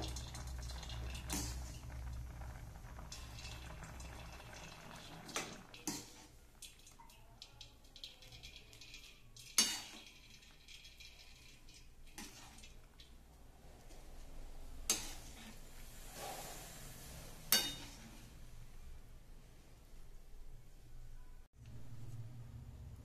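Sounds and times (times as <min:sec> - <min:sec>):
metal spoon clinking against pan: 0:05.7 - 0:13.1, 0:17.5 - 0:18.0
soft scraping: 0:13.5 - 0:18.8.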